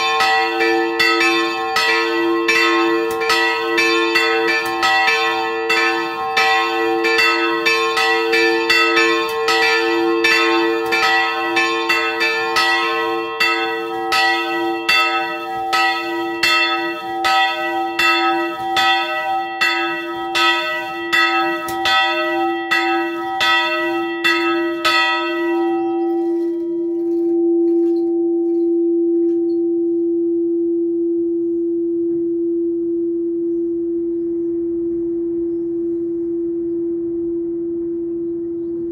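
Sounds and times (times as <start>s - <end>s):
church bells ringing: 0.0s - 29.6s.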